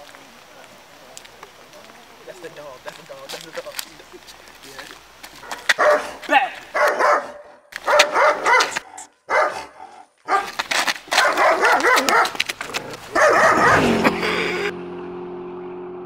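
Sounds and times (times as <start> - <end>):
dog barking agitatedly: 5.4 - 13.9
steady low tone: 13.8 - 16.0.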